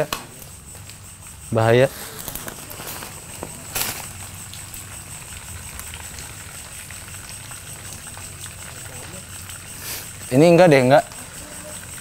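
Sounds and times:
footsteps crunching through plastic litter: 0:01.9 - 0:04.2.

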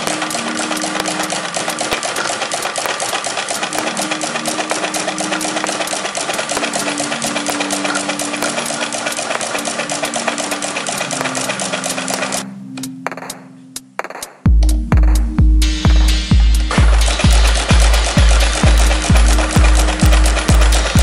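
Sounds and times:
sewing machine needle clatter: 0:00.0 - 0:12.4, 0:16.8 - 0:21.0.

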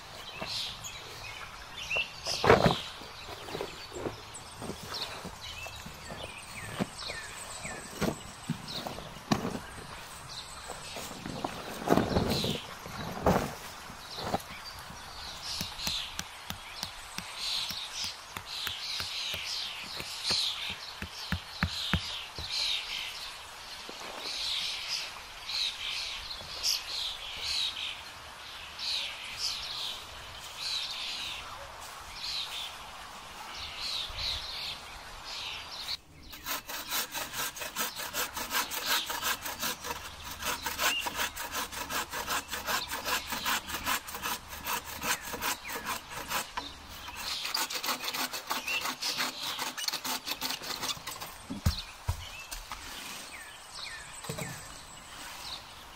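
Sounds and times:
bow saw cutting branch: 0:36.3 - 0:51.8.

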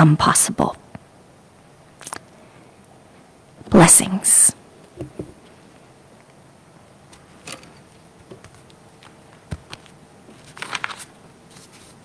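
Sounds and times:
microphone handling taps: 0:05.0 - 0:05.5
crackling rustle: 0:07.1 - 0:12.0.

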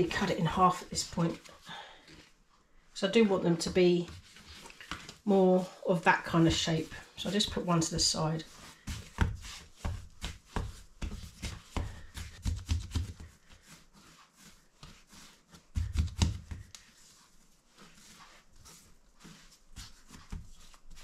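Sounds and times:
hands rubbing dough: 0:00.0 - 0:21.0
dough slapping on counter: 0:08.8 - 0:13.8, 0:15.7 - 0:16.9.

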